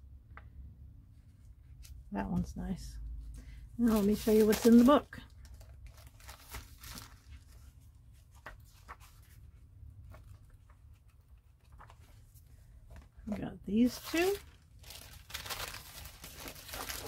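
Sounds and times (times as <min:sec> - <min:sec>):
journal pages rustling: 0:03.8 - 0:17.0.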